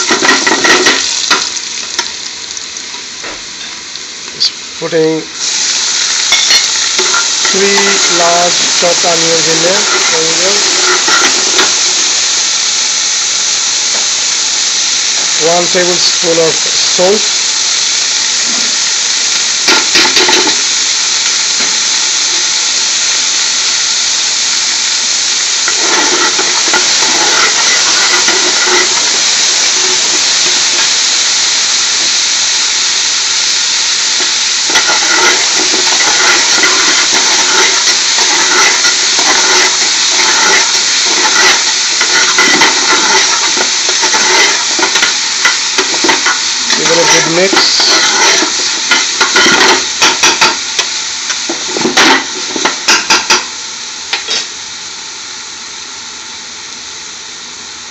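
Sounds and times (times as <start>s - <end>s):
onions sizzling in oil: 0.0s - 57.9s
metal spoon scraping pot: 6.4s - 11.8s, 25.7s - 29.2s, 34.7s - 50.6s.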